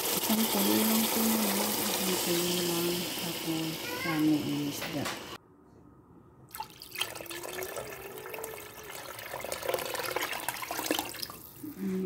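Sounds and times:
broth boiling hard in a pot: 0:00.0 - 0:05.1, 0:07.0 - 0:11.4.

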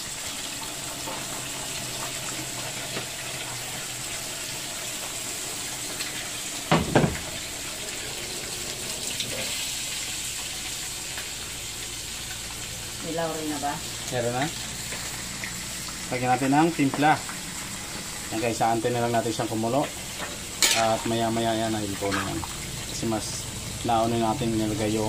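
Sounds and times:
loud knock: 0:06.7 - 0:07.3.

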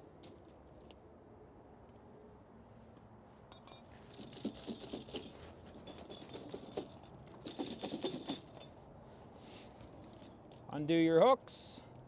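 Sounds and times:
snow chain rattling and clinking: 0:03.5 - 0:08.8.

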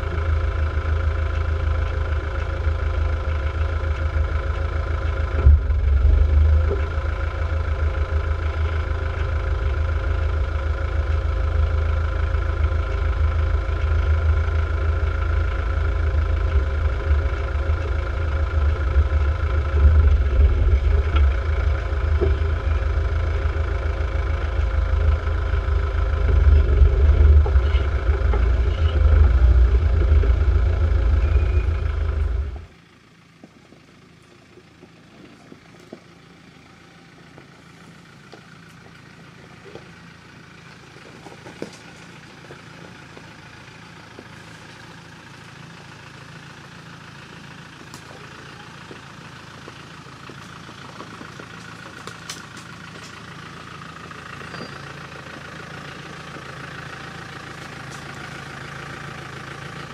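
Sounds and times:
diesel engine at low revs: 0:00.0 - 0:59.9
diesel engine from inside cab: 0:00.0 - 0:59.9
small clicks from stony track: 0:41.0 - 0:43.3, 0:47.3 - 0:53.2, 0:57.5 - 0:58.2.

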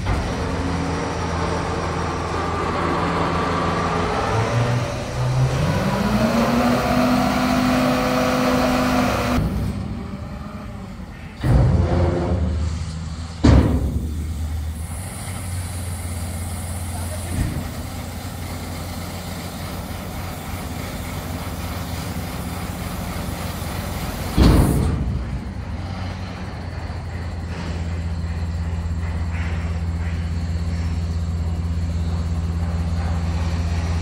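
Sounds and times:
truck engine idling: 0:00.0 - 0:34.0
loud thump: 0:13.4 - 0:14.3.

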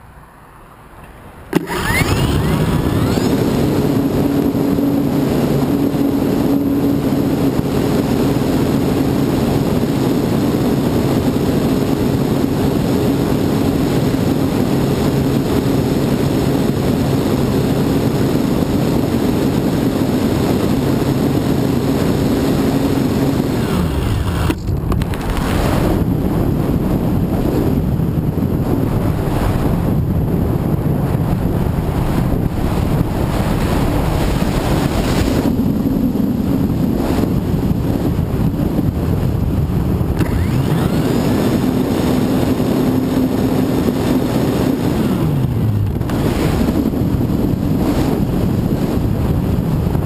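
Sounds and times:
wind noise on microphone: 0:01.4 - 0:50.0
electric motor and propeller drone: 0:01.5 - 0:26.5, 0:40.1 - 0:48.6.

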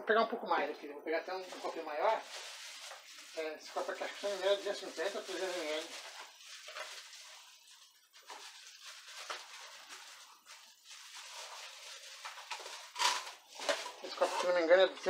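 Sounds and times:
plastic cups rustling and knocking: 0:01.3 - 0:15.0
clatter of objects: 0:05.0 - 0:14.7.

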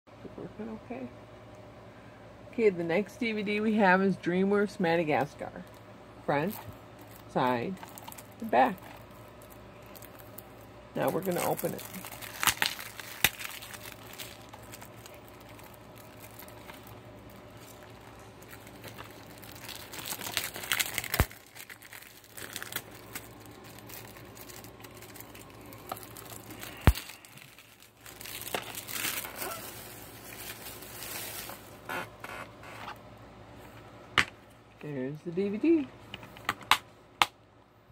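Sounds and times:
plastic wrap crinkling and tearing: 0:06.4 - 0:32.8.

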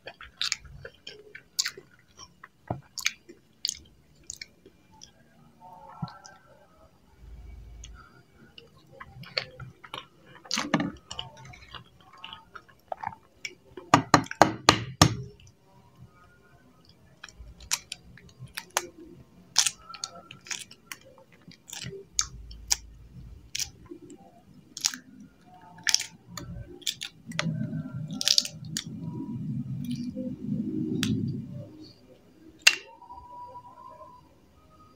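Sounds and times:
eggshell cracking and peeling: 0:17.3 - 0:23.9, 0:24.7 - 0:29.0.

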